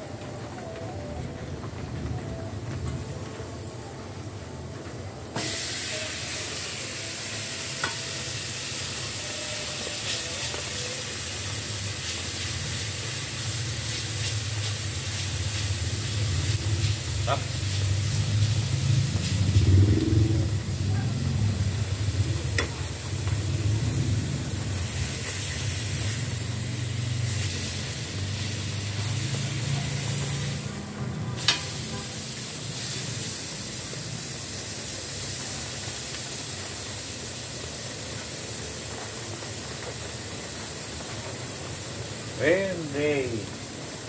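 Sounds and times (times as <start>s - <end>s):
food sizzling in a pan: 5.3s - 44.0s
metal tongs clacking on pan: 31.4s - 31.7s.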